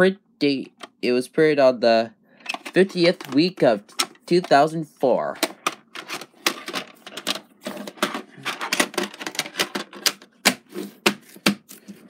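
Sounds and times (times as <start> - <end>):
plastic clicks and knocks: 2.4 - 4.6, 5.4 - 11.6.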